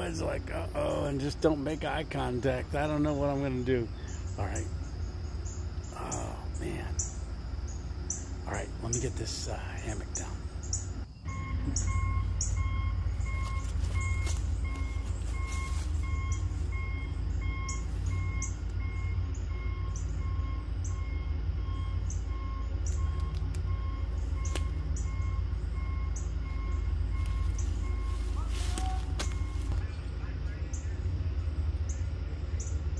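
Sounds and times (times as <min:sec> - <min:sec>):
low engine rumble: 0:00.0 - 0:32.9
reversing alarm beeping: 0:00.0 - 0:32.9.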